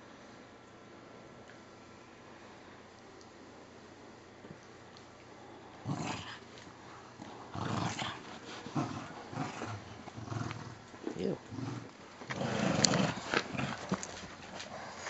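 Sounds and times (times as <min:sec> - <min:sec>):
small dogs growling: 0:05.8 - 0:15.0.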